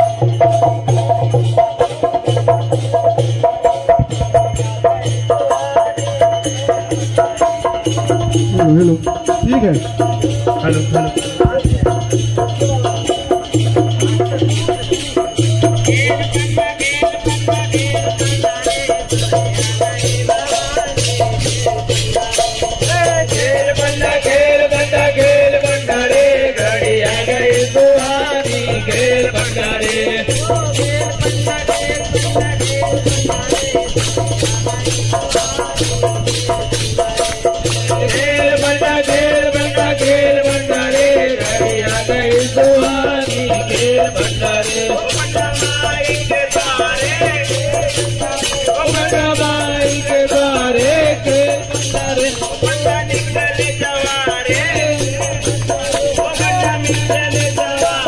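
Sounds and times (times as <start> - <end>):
dholak drum: 0.0 - 58.0
group of men singing: 0.0 - 58.0
jingling hand percussion: 0.0 - 58.0.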